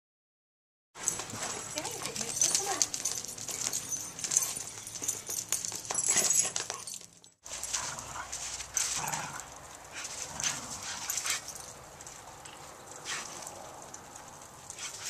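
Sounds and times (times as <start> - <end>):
dog boots clicking on concrete: 1.0 - 15.0
dogs whining: 1.1 - 11.7.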